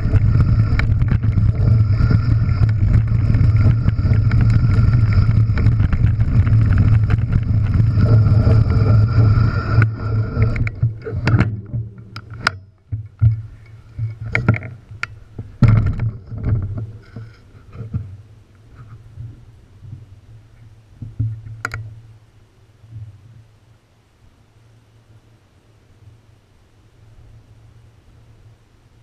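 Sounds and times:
bike tyres rumbling on scree: 0.0 - 12.5
wind on microphone: 0.0 - 18.2
bike and stones clicking and rattling: 0.0 - 19.0.

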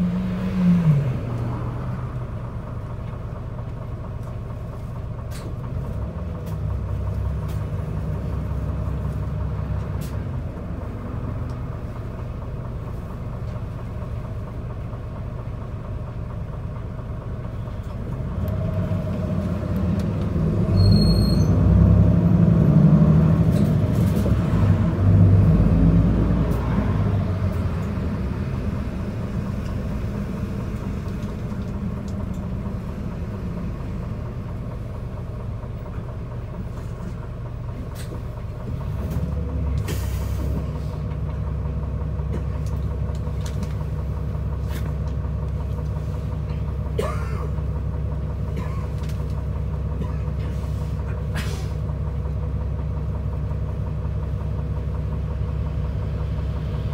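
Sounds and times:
bus engine and road rumble: 0.0 - 56.9
bus engine idling: 0.0 - 56.9
low engine hum: 0.0 - 56.9.

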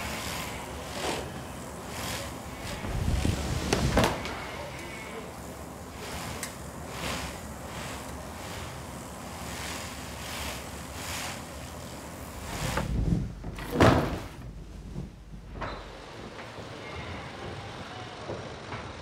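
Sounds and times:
shearing swishing noises: 0.0 - 13.2
loud thump: 12.8 - 14.4.

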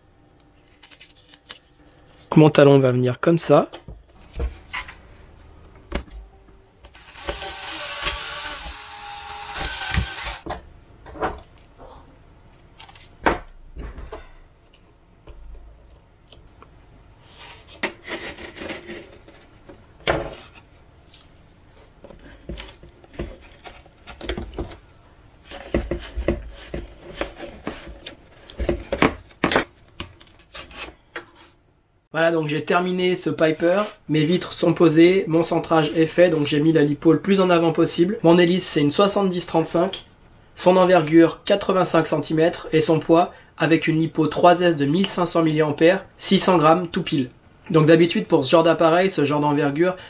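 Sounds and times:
cordless drill whining: 7.0 - 10.4.

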